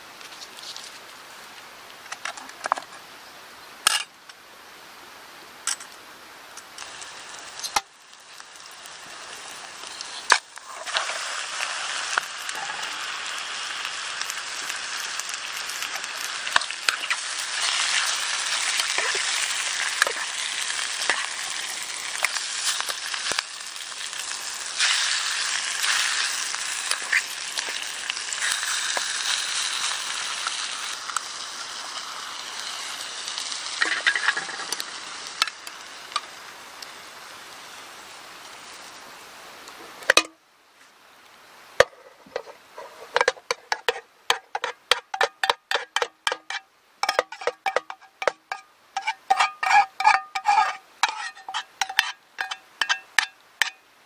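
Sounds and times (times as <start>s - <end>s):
meat and onions sizzling: 6.6s - 39.0s, 41.7s - 53.9s.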